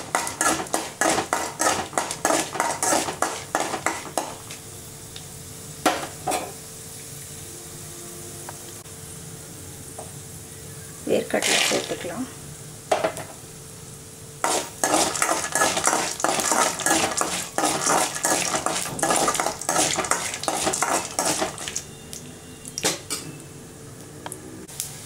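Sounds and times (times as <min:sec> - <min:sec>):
spoon stirring in metal pan: 0:00.0 - 0:04.4, 0:14.4 - 0:21.9
low sizzle of roasting in oil: 0:00.0 - 0:25.0.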